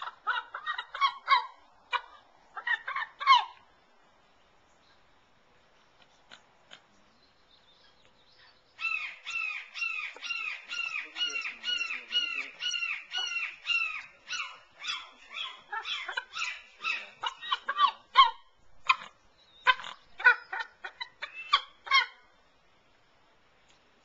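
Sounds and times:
eagle piping calls: 8.8s - 22.2s.

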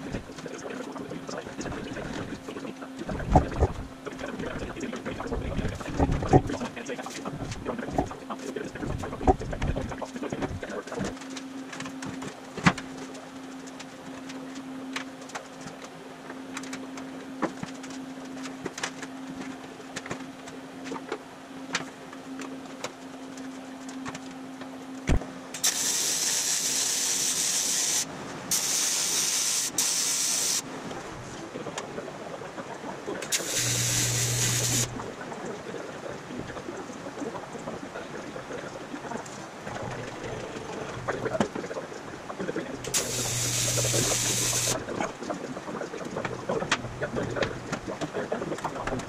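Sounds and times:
steady low hum: 0.0s - 49.0s
welding arc hiss: 25.6s - 30.6s, 33.3s - 35.0s, 42.9s - 44.8s
low buzz: 33.3s - 35.1s, 42.9s - 44.8s.

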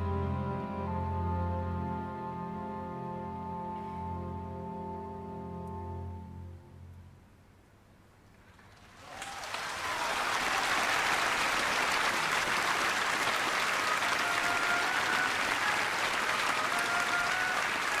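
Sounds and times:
audience applauding: 8.5s - 18.0s.

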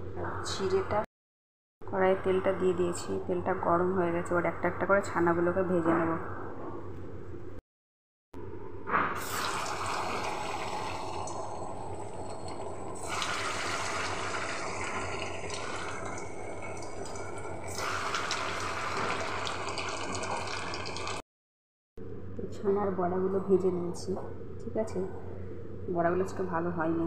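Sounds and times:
patties sizzling in hot oil: 9.2s - 21.2s.

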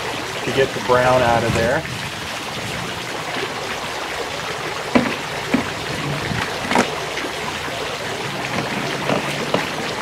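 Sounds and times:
water trickling from fountain: 0.0s - 10.0s
knocks on plastic mold: 4.9s - 5.7s.

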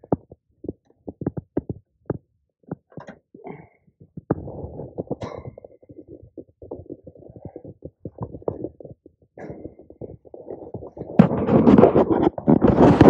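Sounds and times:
fabric rubbing on microphone: 4.3s - 13.0s.

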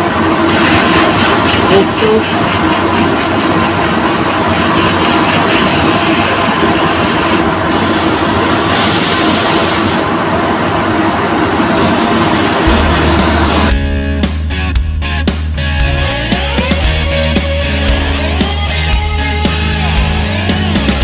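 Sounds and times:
booth ventilation rushing air: 0.0s - 21.0s
spray gun hissing: 0.4s - 10.1s, 11.7s - 13.7s.

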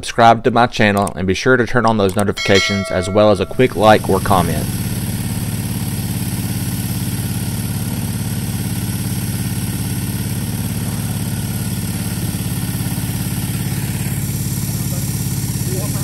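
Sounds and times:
small engine idling: 3.9s - 16.0s.

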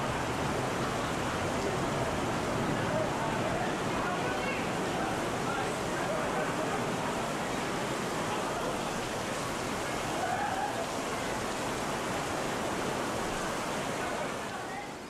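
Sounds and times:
heavy rain pouring: 0.0s - 15.0s
water streaming off awning: 0.0s - 15.0s.

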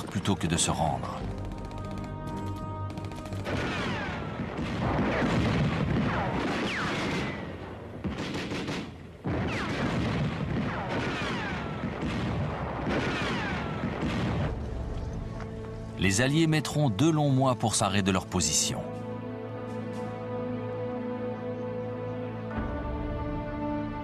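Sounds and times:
music: 0.0s - 5.3s, 13.6s - 24.0s
rapid rifle and machine-gun fire: 1.2s - 14.6s.

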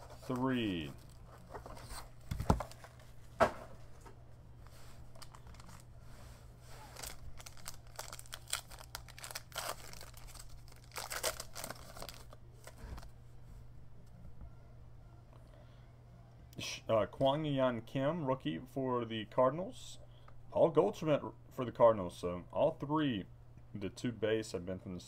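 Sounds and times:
foil wrapper tearing and crinkling: 6.9s - 12.4s.

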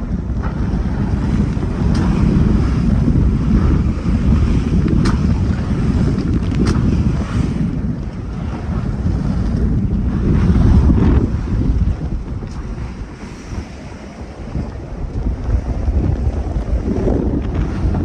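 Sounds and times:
waves rushing past hull: 0.0s - 18.0s
wind buffeting microphone: 0.0s - 18.0s
water slaps: 1.4s - 8.2s.

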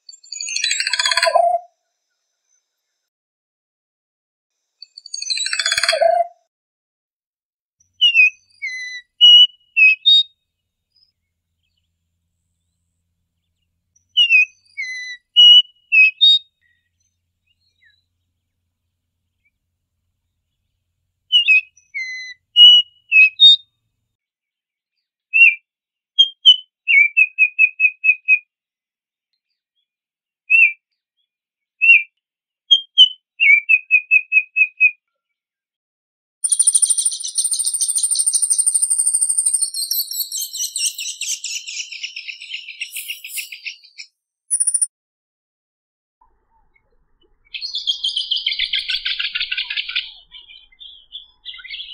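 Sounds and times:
oriole singing fluting whistles: 8.0s - 10.3s, 14.1s - 16.8s, 21.3s - 23.6s, 36.5s - 44.8s.

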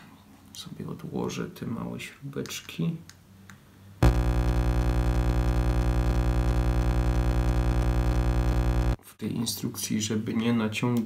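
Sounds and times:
fast pulsing hum: 4.0s - 9.0s
loud electronic buzz: 4.0s - 9.0s.

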